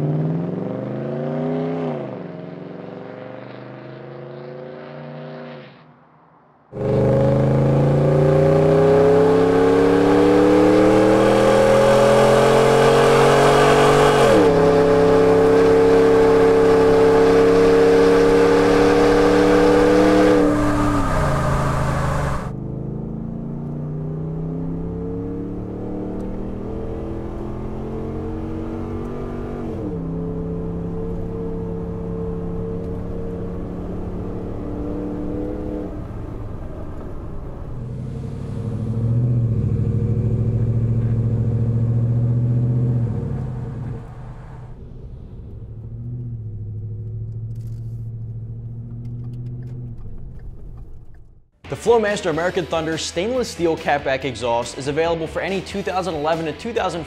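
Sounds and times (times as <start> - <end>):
truck engine accelerating: 6.7 - 57.0.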